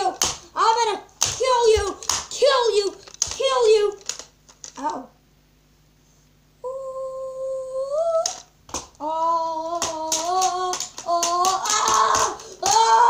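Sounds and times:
child humming sound effects: 6.6s - 8.4s, 9.0s - 13.0s
plastic action figures knocking: 9.7s - 13.0s.

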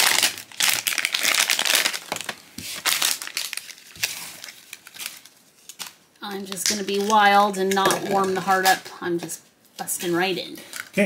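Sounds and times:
foil pouch crinkling: 0.0s - 7.4s.

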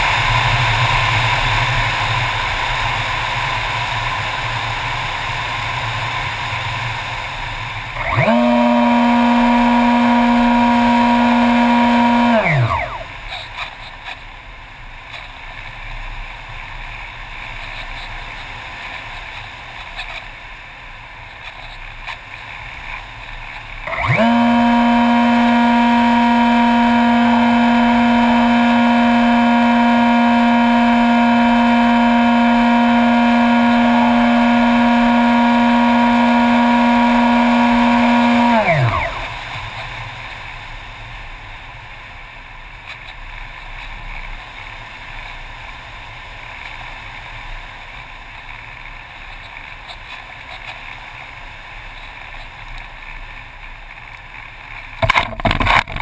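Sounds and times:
model airplane motor droning: 7.9s - 13.7s, 23.7s - 39.9s.

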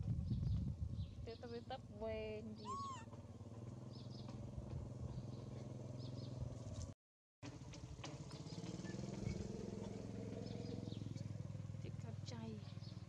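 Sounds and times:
faint high chirps: 2.6s - 3.1s
small engine humming: 2.6s - 6.8s.

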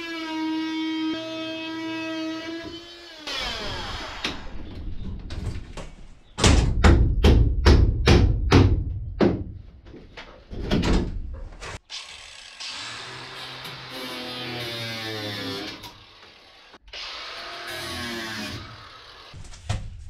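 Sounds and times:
hammer knocking on wooden stud: 6.4s - 9.6s.

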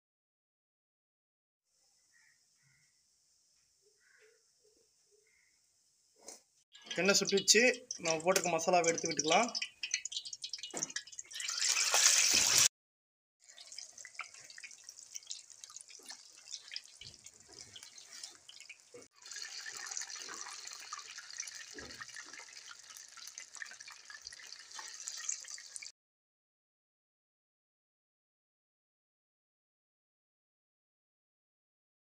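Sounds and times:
food deep-frying in oil: 6.8s - 12.7s, 13.4s - 25.9s.

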